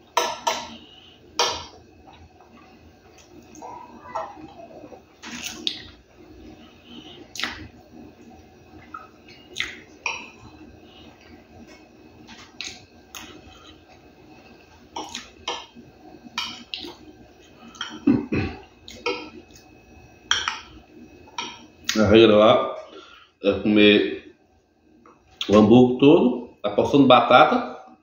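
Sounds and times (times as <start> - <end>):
chewing smacks: 5.2 - 6.0, 7.3 - 7.7, 8.8 - 10.3.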